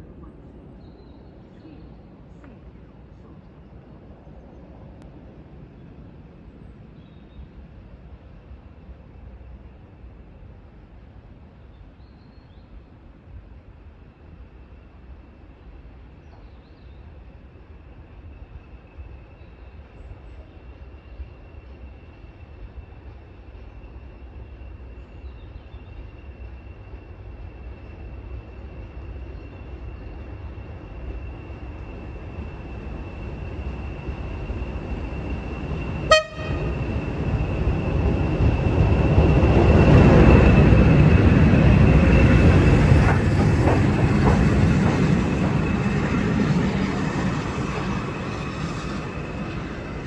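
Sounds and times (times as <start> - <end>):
diesel locomotive engines rumbling: 0.0 - 50.0
train running noise: 0.0 - 50.0
locomotive horn toot: 36.1 - 37.0.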